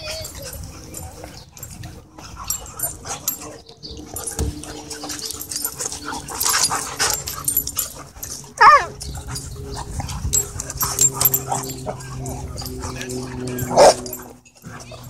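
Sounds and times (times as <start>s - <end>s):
dogs scuffling on dirt: 0.0s - 15.0s
dog yelp: 8.6s - 9.0s, 10.8s - 14.1s.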